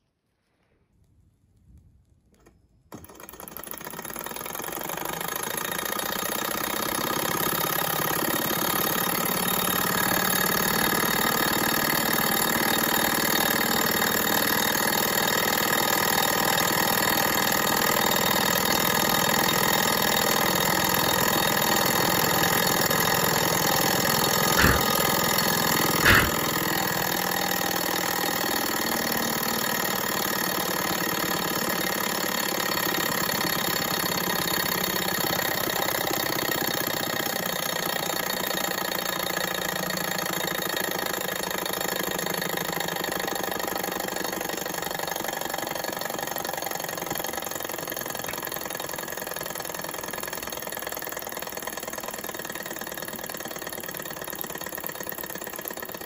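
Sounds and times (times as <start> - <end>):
stirling engine mechanical whir: 20.2 - 27.6.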